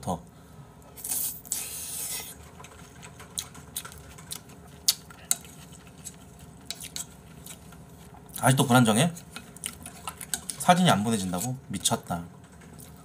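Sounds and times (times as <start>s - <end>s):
chewing: 1.0s - 8.5s, 9.2s - 10.7s, 12.4s - 13.0s.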